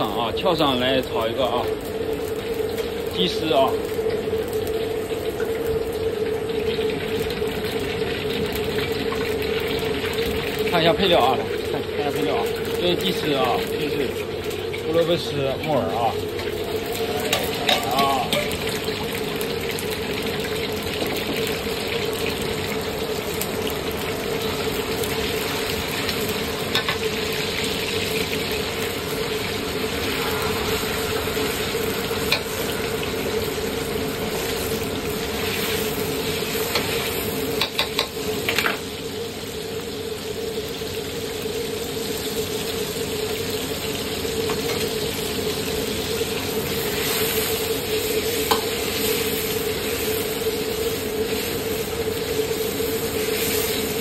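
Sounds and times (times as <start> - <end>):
chicken sizzling in hot oil: 0.0 - 54.0
ladle scraping wok: 29.6 - 38.8.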